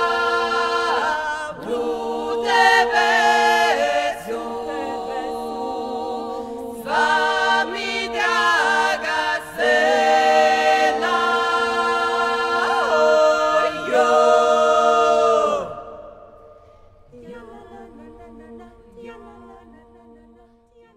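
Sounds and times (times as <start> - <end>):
vocal group singing harmony: 0.0 - 20.9.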